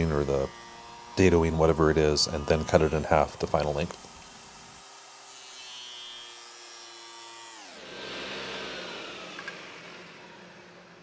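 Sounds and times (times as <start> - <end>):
table saw motor winding down: 0.0 - 11.0.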